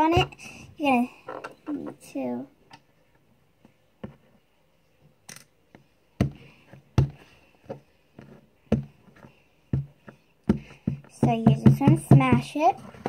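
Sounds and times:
play dough thumping on table: 6.2s - 7.3s, 9.7s - 12.6s.

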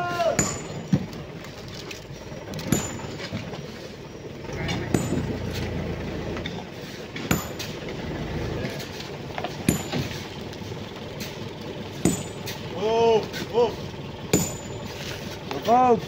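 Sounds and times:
low steady rumble: 0.0s - 16.0s
hand tools striking rock: 0.2s - 1.1s, 2.6s - 3.4s, 4.8s - 5.3s, 7.2s - 7.8s, 9.5s - 10.2s, 12.0s - 12.6s, 14.3s - 14.8s.

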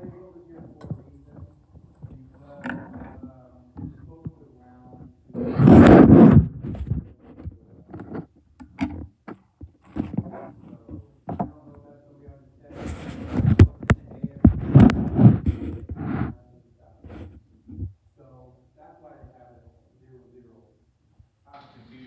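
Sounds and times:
loud rustling and thumping: 5.4s - 10.3s.

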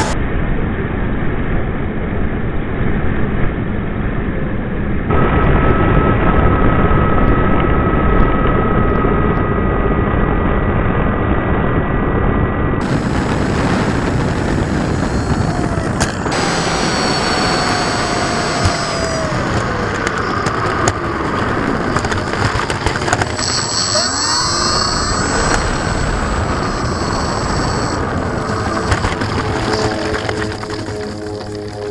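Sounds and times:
wind rumble: 0.0s - 31.9s
electric motor whining: 12.8s - 31.9s.

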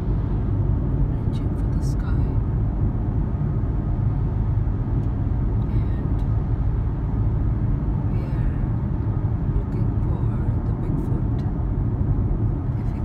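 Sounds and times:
car cabin road and engine rumble: 0.0s - 13.0s.

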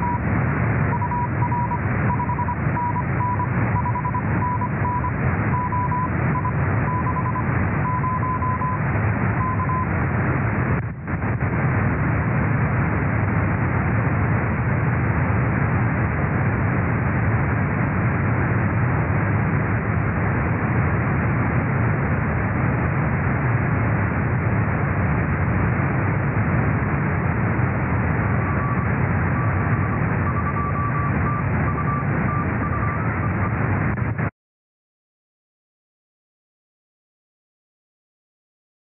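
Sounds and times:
morse code tone: 0.0s - 0.3s, 0.9s - 8.8s, 9.4s - 9.9s, 28.4s - 33.6s
radio receiver hiss: 0.0s - 34.3s.

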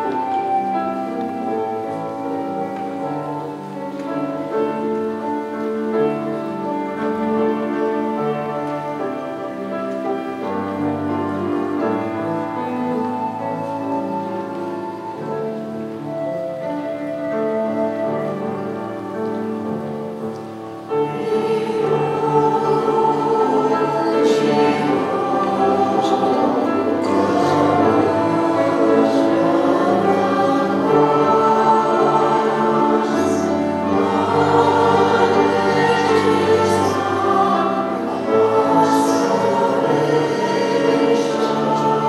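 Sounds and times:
church choir singing a hymn: 0.0s - 42.0s.

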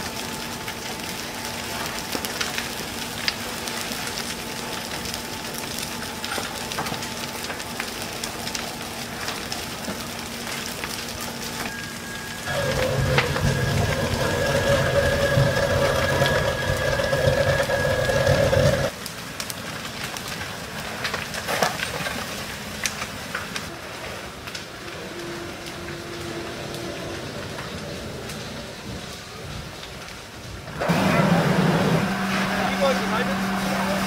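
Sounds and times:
burning house crackling: 0.0s - 34.0s
fire popping: 0.0s - 34.0s
engine running: 11.7s - 18.9s, 30.8s - 34.0s.

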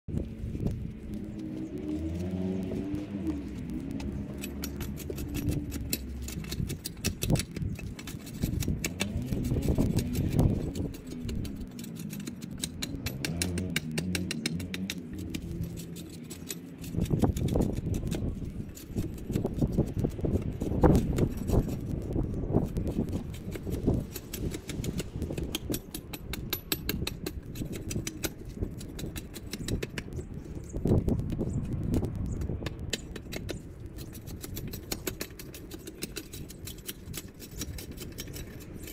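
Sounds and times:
hand tool scraping wood: 0.5s - 31.7s, 32.5s - 38.9s.

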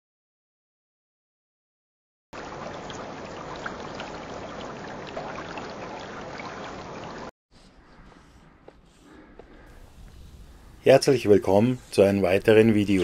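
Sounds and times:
rushing stream-like noise: 2.4s - 7.3s
open-air ambience: 2.4s - 13.0s.

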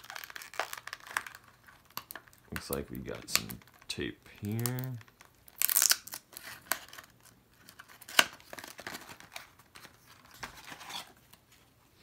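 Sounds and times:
tape ripping off cardboard: 0.0s - 2.3s, 5.5s - 7.1s, 7.8s - 9.4s.

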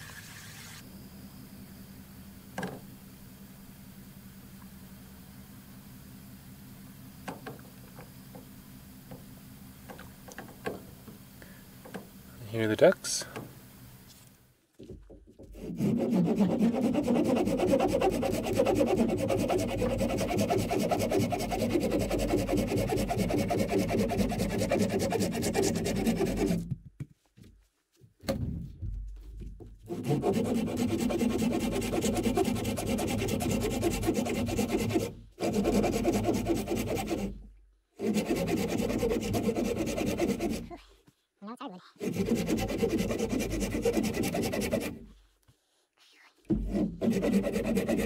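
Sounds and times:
hand saw cutting wood: 15.4s - 26.7s, 29.9s - 40.8s, 42.0s - 45.2s, 46.5s - 48.0s.

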